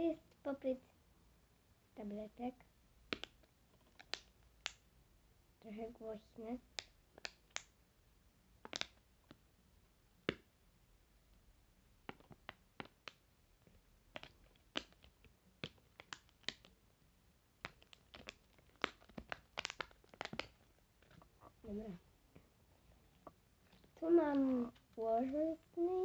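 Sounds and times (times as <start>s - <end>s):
plastic bubbles popping: 3.1s - 4.3s, 8.6s - 9.4s, 12.0s - 13.2s, 14.1s - 16.7s, 17.6s - 21.7s.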